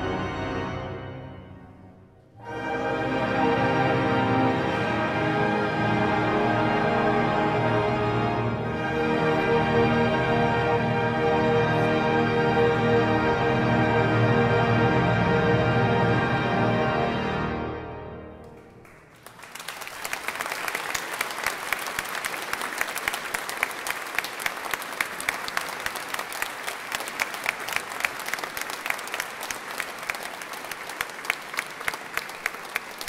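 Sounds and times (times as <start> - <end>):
wind band and organ chord: 0.0 - 18.8
audience applause: 18.5 - 33.0.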